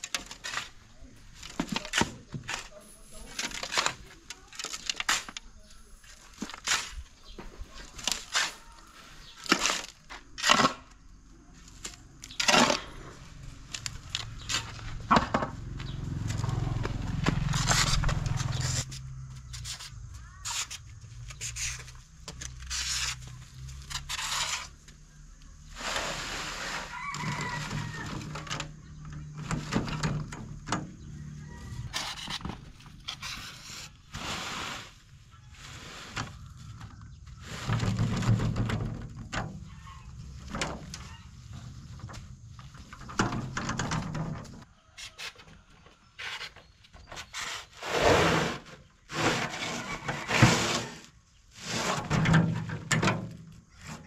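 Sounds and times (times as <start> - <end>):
sharp knocks and scrapes: 6.2 - 11.0, 11.8 - 54.0
rooster crowing: 26.7 - 28.5, 31.1 - 32.3, 49.6 - 51.1.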